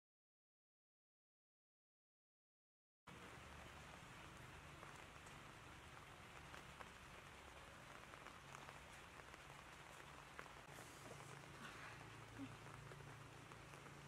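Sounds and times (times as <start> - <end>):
light rain on wet ground: 3.1 - 14.0.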